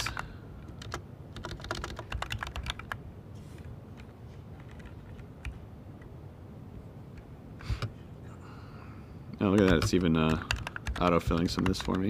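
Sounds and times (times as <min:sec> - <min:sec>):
computer keyboard typing: 0:00.0 - 0:03.0, 0:04.0 - 0:05.6, 0:09.4 - 0:12.0.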